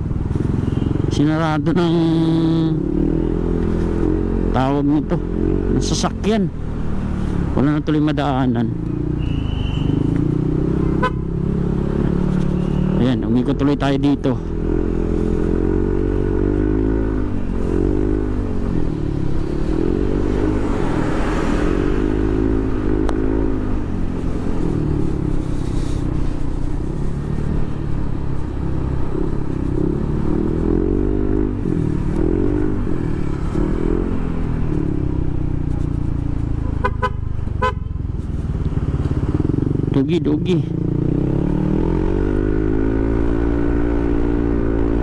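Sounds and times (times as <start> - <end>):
horn short toots: 9.2 - 10.0.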